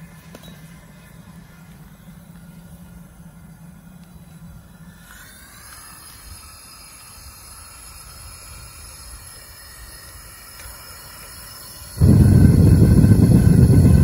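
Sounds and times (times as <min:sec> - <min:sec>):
low hum: 0:00.0 - 0:14.0
gas burner hissing: 0:04.7 - 0:14.0.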